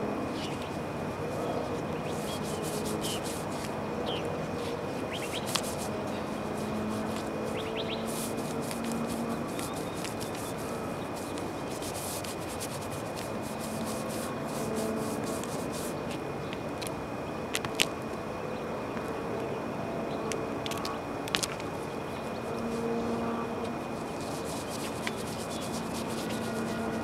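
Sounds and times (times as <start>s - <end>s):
thin high whine: 0.0s - 16.2s, 21.8s - 27.0s
steady hum: 0.0s - 27.0s
hand tool scraping roof: 4.7s - 16.0s, 24.1s - 27.0s.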